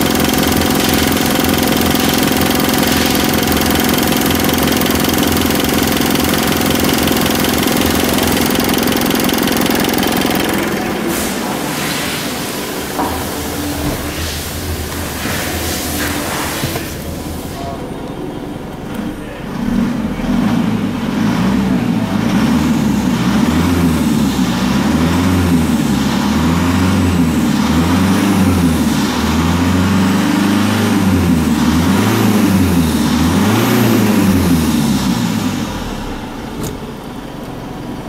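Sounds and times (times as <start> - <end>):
diesel engine idling and revving: 0.0 - 38.0.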